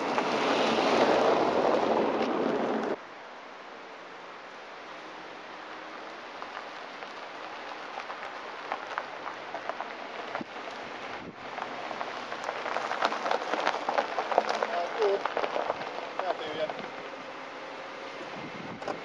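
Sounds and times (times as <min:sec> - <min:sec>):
outdoor hiss: 0:03.0 - 0:19.0
crunching over gravel: 0:05.7 - 0:19.0.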